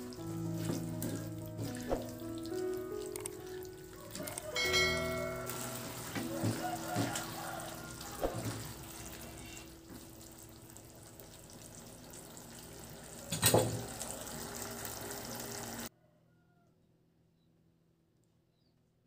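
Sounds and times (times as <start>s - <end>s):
food sizzling in a frying pan: 4.5s - 10.2s, 10.9s - 15.9s
spatula knocking and scraping pan: 4.6s - 7.6s.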